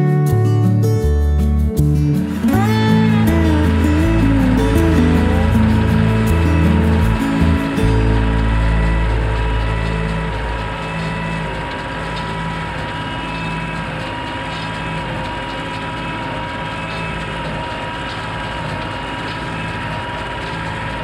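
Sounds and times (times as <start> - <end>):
hay baler working: 0.3 - 21.0
tractor engine under load: 2.1 - 21.0.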